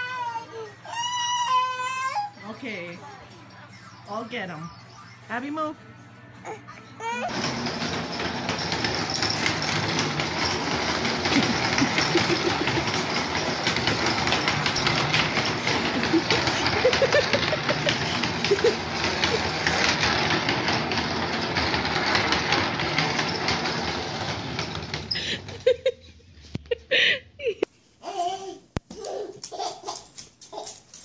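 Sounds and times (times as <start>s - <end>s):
plastic wheels rattling over tile: 7.3s - 25.8s.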